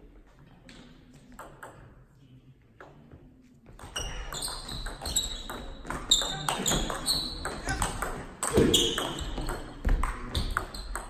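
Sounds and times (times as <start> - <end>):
shoes squeaking on floor: 3.7 - 9.9
table tennis ball hits: 3.8 - 11.0.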